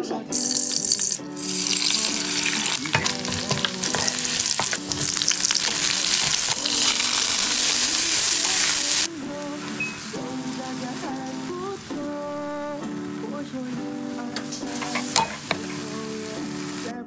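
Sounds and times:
food sizzling in hot oil: 0:00.3 - 0:17.0
spatula scraping a wok: 0:01.5 - 0:09.0, 0:14.4 - 0:16.7.

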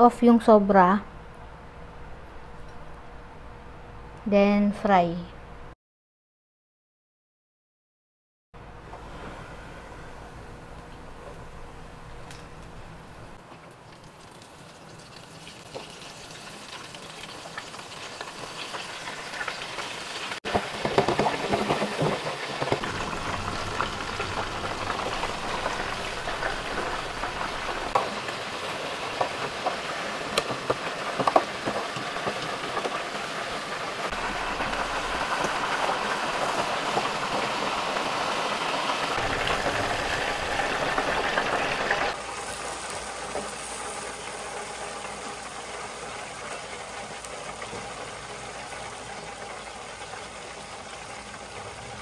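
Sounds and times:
chicken deep-frying in oil: 0:13.3 - 0:52.0.

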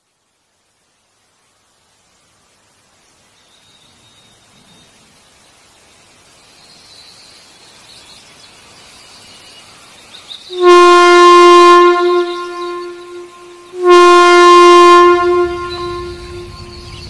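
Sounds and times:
locomotive air horn blasts: 0:10.5 - 0:17.0.

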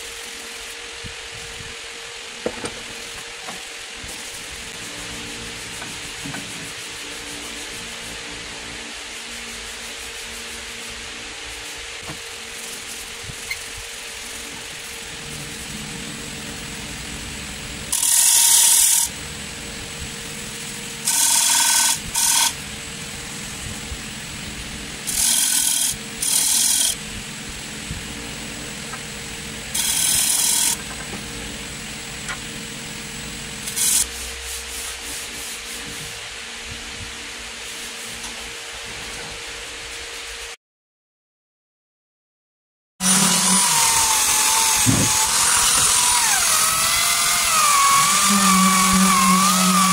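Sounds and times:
hissing sanding: 0:02.9 - 0:30.9, 0:33.4 - 0:36.5, 0:43.0 - 0:49.9
wood lathe humming: 0:14.3 - 0:34.1, 0:43.0 - 0:49.9.

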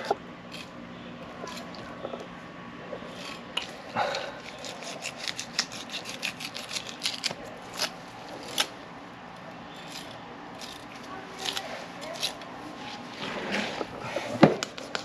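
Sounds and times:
knife scraping fish scales: 0:00.5 - 0:00.8, 0:01.4 - 0:01.8, 0:03.1 - 0:08.7, 0:09.7 - 0:15.0.

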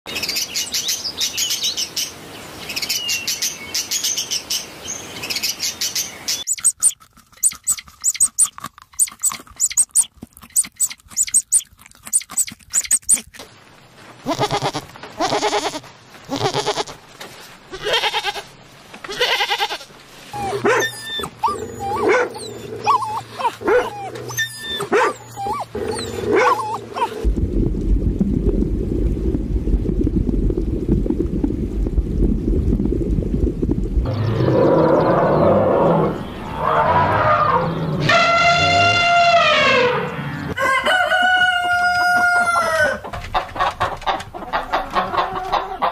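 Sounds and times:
short chirping calls: 0:05.2 - 0:13.2
parrot chatter and squawks: 0:06.4 - 0:13.4, 0:20.4 - 0:27.2
goats bleating: 0:14.2 - 0:17.0, 0:17.7 - 0:18.5, 0:19.1 - 0:19.9
bubbling water rushing: 0:20.4 - 0:34.3
low hum: 0:20.4 - 0:36.6.

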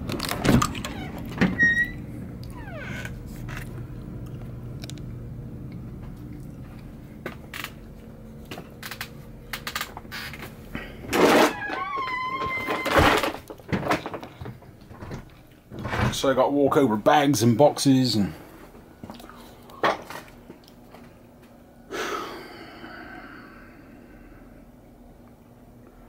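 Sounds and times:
low steady hum: 0:00.0 - 0:26.0
door hinge squeak: 0:00.8 - 0:03.1, 0:11.4 - 0:13.0.

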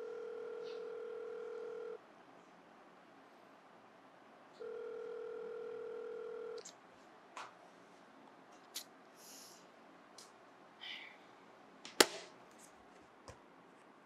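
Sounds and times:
telephone ringback tone: 0:00.0 - 0:02.0, 0:04.6 - 0:06.6.

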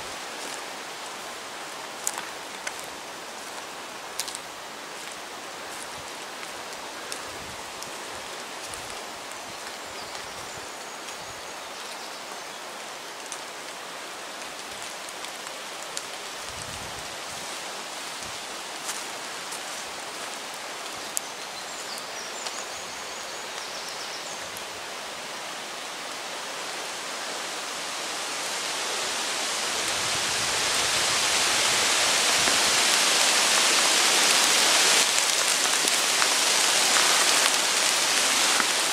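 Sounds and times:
creek rushing: 0:00.0 - 0:38.9.

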